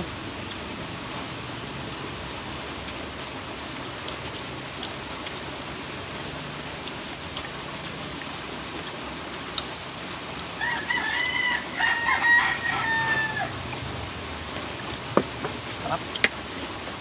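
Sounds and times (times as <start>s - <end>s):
rooster crowing: 10.6s - 13.6s.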